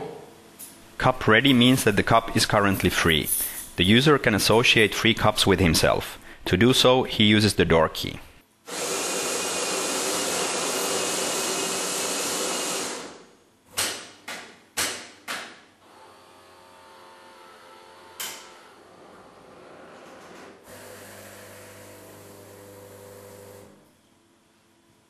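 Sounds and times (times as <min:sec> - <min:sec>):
coffee grinder running: 0:08.7 - 0:13.2, 0:15.8 - 0:18.5, 0:20.7 - 0:23.8
pump humming: 0:20.7 - 0:23.8.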